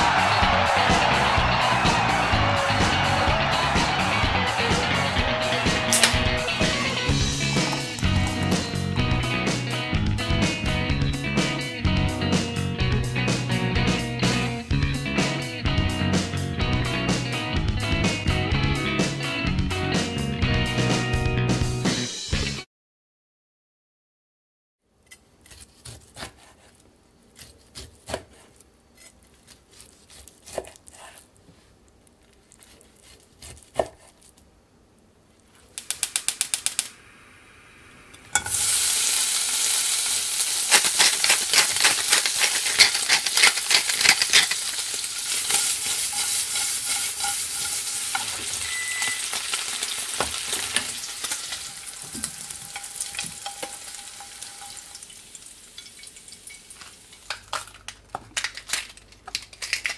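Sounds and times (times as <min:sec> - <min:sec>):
knife chopping on wooden board: 0:25.5 - 0:26.7, 0:27.4 - 0:28.5, 0:33.0 - 0:34.2
meat sizzling in a frying pan: 0:38.3 - 0:57.3.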